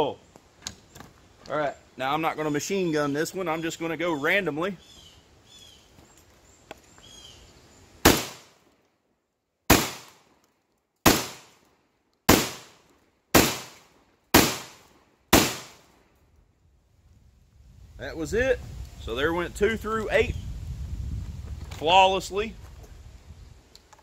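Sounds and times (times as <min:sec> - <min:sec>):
shotgun shots with echo: 0:08.0 - 0:08.5, 0:09.7 - 0:10.2, 0:11.0 - 0:11.5, 0:12.3 - 0:15.8.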